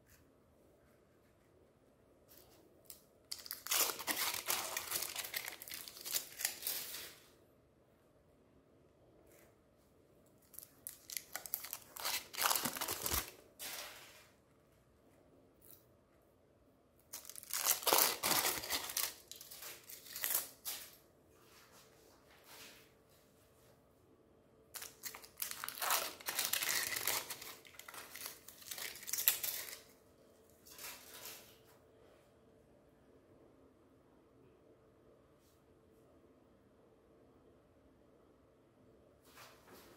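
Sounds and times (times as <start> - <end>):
foil wrappers crumpling: 3.3 - 7.2, 10.5 - 13.9, 17.1 - 21.0, 24.8 - 29.9.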